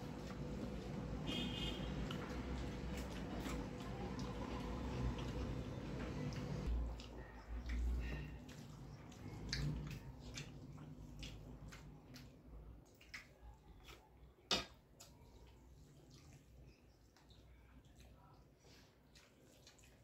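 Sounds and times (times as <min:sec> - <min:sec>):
wet mouth sounds eating: 0:00.0 - 0:14.3, 0:15.0 - 0:20.0.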